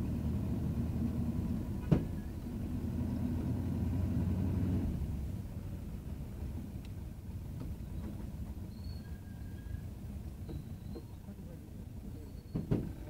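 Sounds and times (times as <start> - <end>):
bus engine running: 0.0 - 13.0
road rumble: 0.0 - 13.0.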